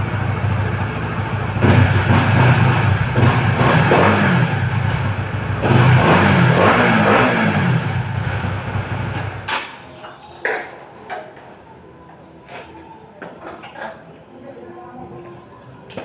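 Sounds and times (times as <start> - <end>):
motorcycle engine revving: 0.0 - 9.5.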